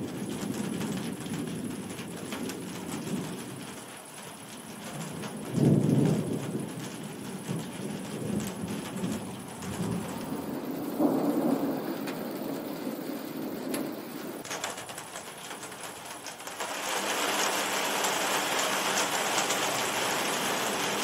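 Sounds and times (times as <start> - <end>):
thunder rumbling: 0.0 - 16.3
steady rain: 0.0 - 21.0.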